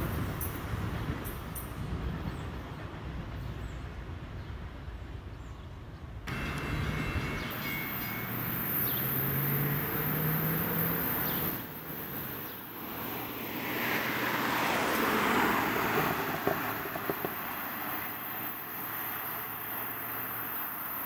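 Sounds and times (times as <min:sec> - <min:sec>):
vehicle rushing noise: 0:06.3 - 0:20.5.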